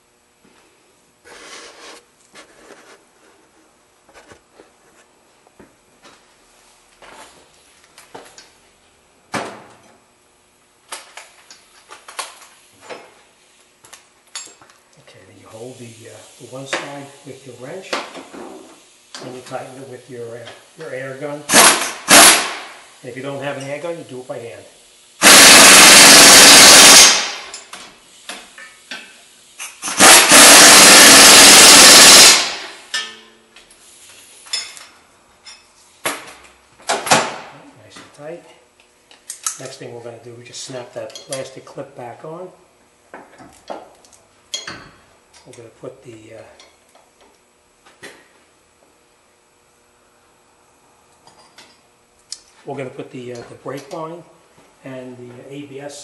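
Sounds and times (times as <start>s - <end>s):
pneumatic impact wrench bursts: 21.4s - 22.9s, 25.2s - 28.4s, 29.6s - 33.0s.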